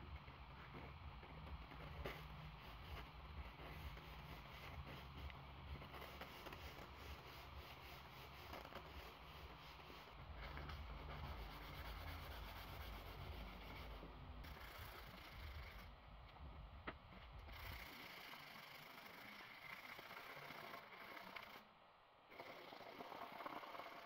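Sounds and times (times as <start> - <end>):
steady low hum: 0.0 - 24.0
sandpaper rasping on wood: 1.9 - 15.9, 17.5 - 21.6.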